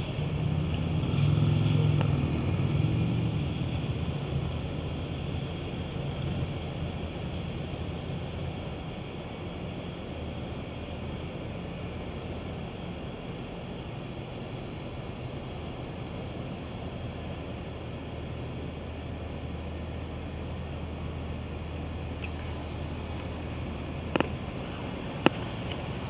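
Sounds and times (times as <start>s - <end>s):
truck diesel engine running: 0.0s - 26.0s.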